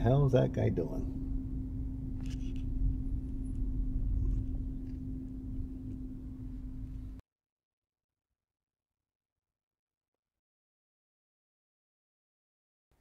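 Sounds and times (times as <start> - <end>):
car idling: 0.0 - 7.2.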